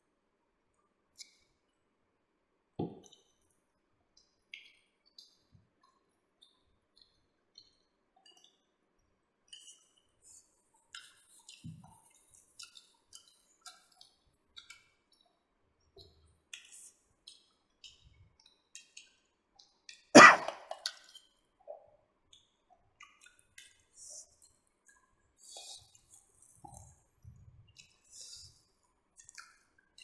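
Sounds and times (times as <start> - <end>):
chewing and smacking: 9.5 - 15.4, 16.0 - 20.1, 20.7 - 30.0
mouth clicks: 20.2 - 20.9.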